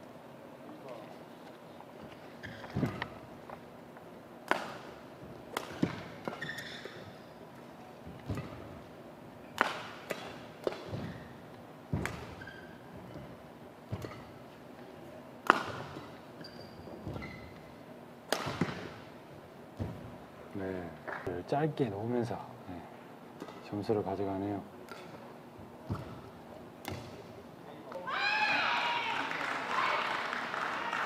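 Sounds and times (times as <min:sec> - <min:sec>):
shoes squeaking on floor: 0:02.0 - 0:03.4, 0:05.7 - 0:07.4, 0:10.8 - 0:14.4, 0:15.7 - 0:17.8
rackets hitting shuttlecock: 0:04.4 - 0:20.2, 0:23.4 - 0:23.7, 0:24.8 - 0:28.1.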